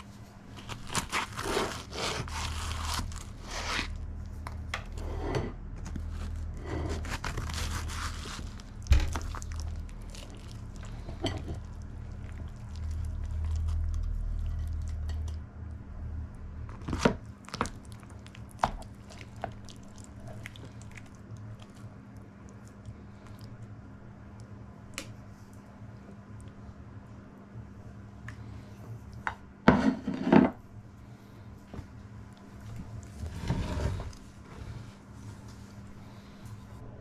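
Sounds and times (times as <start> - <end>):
low hum: 0.0 - 29.5
utensil cutting crisp pastry: 0.5 - 5.0, 5.9 - 11.8.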